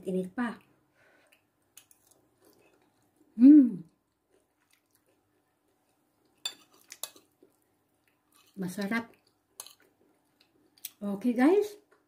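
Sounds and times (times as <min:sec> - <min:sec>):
woman humming mmm: 0:03.4 - 0:03.9.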